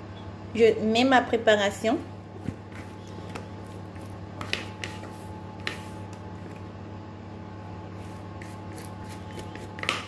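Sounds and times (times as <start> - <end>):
spoon scraping a bowl: 4.4 - 6.0.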